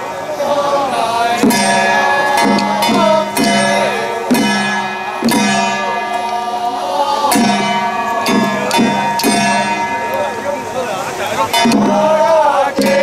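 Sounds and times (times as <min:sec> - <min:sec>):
high wavering melody: 0:00.0 - 0:13.0
ringing drum and percussion strikes: 0:01.0 - 0:13.0.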